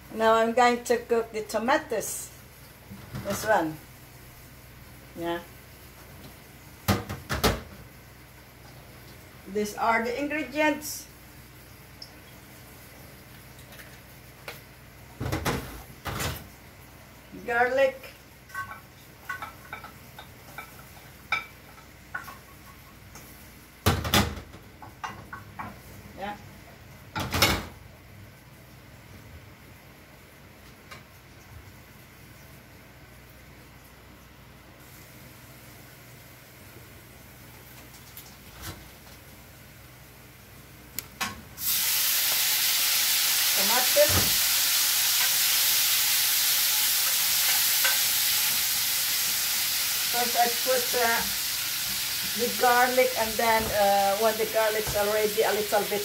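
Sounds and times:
tomatoes sizzling in oil: 0.0s - 27.1s, 29.5s - 56.0s
dishes clattering: 18.5s - 22.9s.

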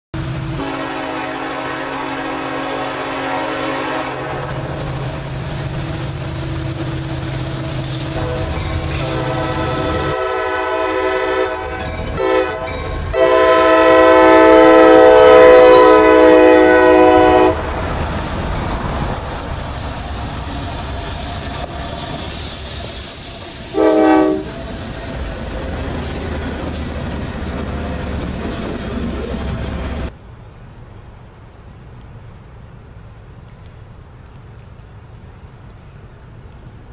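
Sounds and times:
locomotive air horn blasts: 0.2s - 4.6s, 8.0s - 17.6s, 23.7s - 24.6s.

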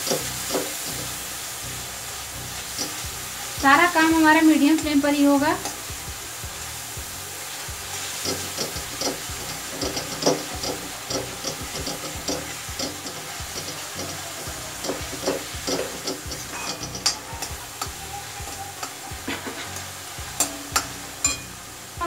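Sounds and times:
frying sizzle: 0.0s - 22.0s
spoon scraping metal pan: 8.2s - 21.5s.

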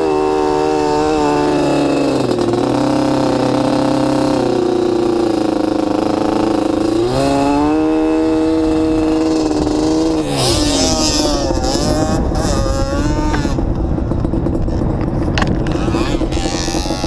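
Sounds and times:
off-road vehicle engine revving: 0.0s - 17.0s
wind on microphone: 7.0s - 17.0s.

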